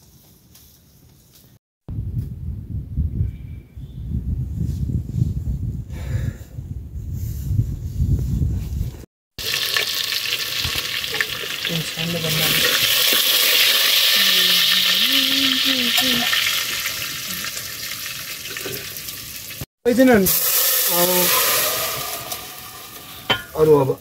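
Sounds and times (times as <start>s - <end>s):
hot oil sizzling: 9.4s - 24.0s.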